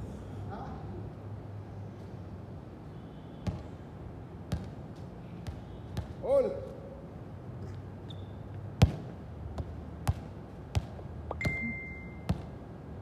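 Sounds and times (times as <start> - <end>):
steady high tone: 11.3 - 12.3.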